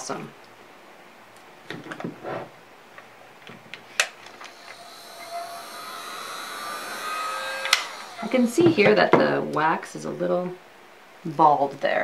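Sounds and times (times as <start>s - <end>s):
heat gun fan whine: 3.4s - 10.2s.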